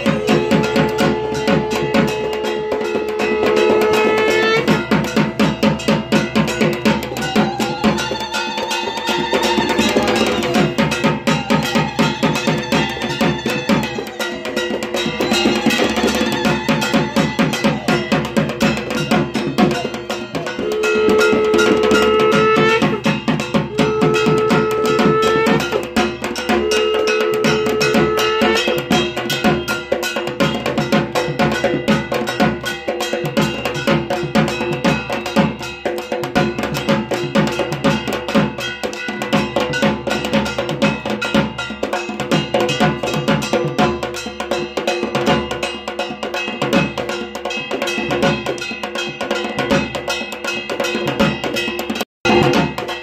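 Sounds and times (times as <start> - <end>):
conch shell blasts: 0.0 - 5.2, 20.4 - 25.8, 26.4 - 29.1
drumming: 0.0 - 53.0
metal gong clanging: 0.0 - 53.0.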